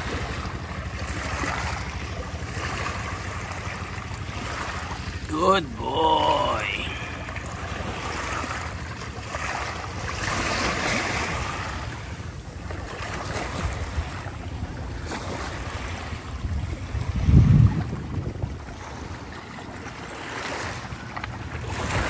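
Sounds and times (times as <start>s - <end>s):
small waves lapping over pebbles: 0.0s - 22.0s
wind buffeting microphone: 10.6s - 19.8s.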